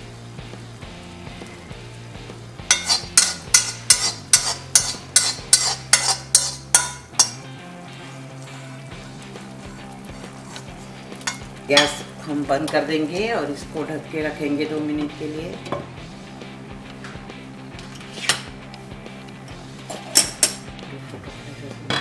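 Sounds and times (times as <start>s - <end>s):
metal spoon scraping steel pan: 2.7s - 7.4s, 10.2s - 12.0s.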